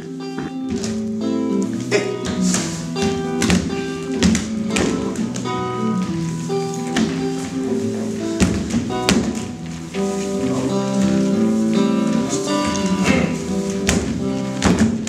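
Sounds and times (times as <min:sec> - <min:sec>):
guitar playing: 0:00.0 - 0:15.0
sharp percussive taps: 0:02.2 - 0:06.2.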